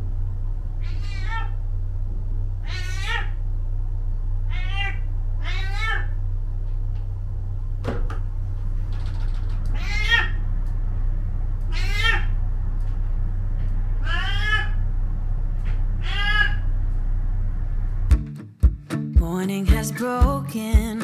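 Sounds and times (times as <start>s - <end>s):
low hum: 0.0s - 18.2s
cat meowing: 0.8s - 1.6s, 2.6s - 3.4s, 4.5s - 6.2s, 9.7s - 10.4s, 11.7s - 12.4s, 14.0s - 14.8s, 16.0s - 16.7s.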